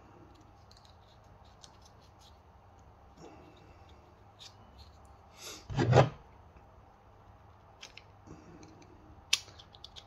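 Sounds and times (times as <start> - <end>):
plastic parts clicking: 7.8 - 10.0.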